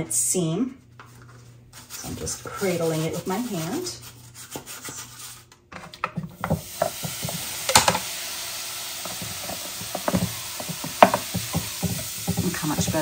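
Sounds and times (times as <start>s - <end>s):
steady hiss: 6.6s - 13.0s.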